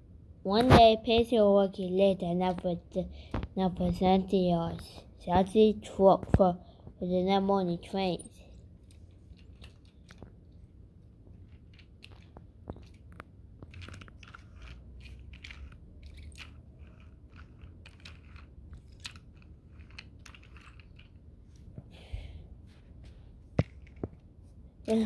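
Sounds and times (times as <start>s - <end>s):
toy trains clicking on carpet: 8.3s - 10.7s, 11.3s - 21.7s.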